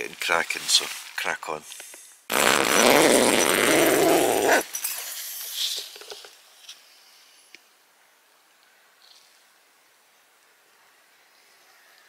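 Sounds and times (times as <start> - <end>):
tent zipper pulled open: 2.3 - 4.7.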